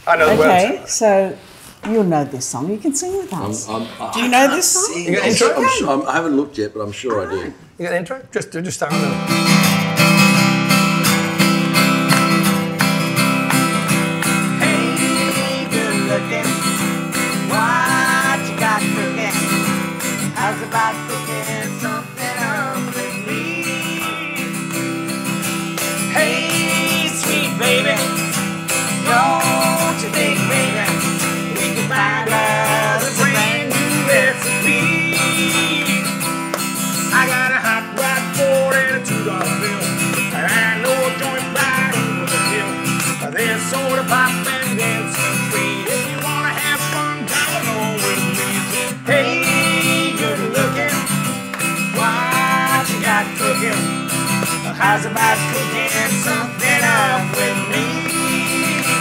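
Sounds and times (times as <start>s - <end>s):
acoustic guitar strumming: 0.0s - 1.0s, 4.2s - 6.0s, 8.9s - 59.0s
man singing: 0.2s - 0.8s, 4.1s - 6.0s, 14.3s - 59.0s
woman singing: 0.3s - 1.2s, 4.2s - 5.9s, 14.6s - 16.7s, 17.4s - 24.6s, 26.1s - 28.2s, 29.0s - 36.2s, 49.0s - 51.1s, 54.7s - 59.0s.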